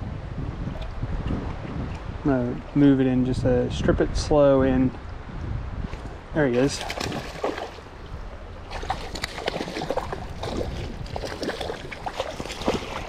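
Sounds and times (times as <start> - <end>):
fish splashing at surface: 6.0 - 7.9, 8.7 - 13.0.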